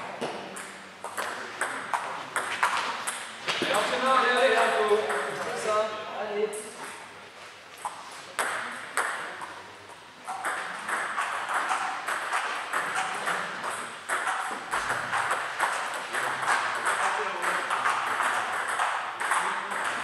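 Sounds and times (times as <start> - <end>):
table tennis ball clicking: 10.3 - 20.0.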